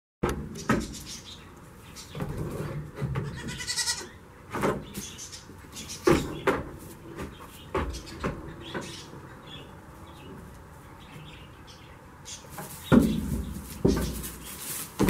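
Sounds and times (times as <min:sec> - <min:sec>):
hooves knocking on wooden boards: 0:02.1 - 0:03.8, 0:05.9 - 0:09.3, 0:12.5 - 0:15.0
goat bleating: 0:03.2 - 0:04.2.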